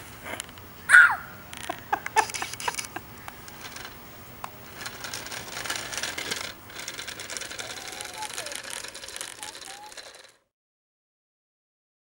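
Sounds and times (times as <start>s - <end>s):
small toy motor whirring: 2.2s - 4.0s, 4.7s - 10.5s.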